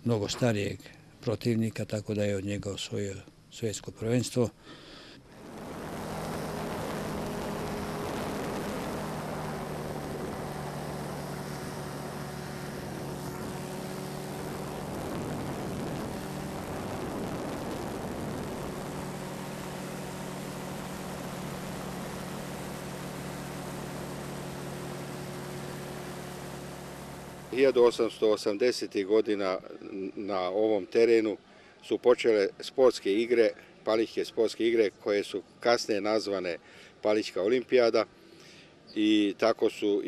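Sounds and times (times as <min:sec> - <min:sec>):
propeller aircraft engine droning: 0:05.1 - 0:28.2
rush of air: 0:05.2 - 0:27.6.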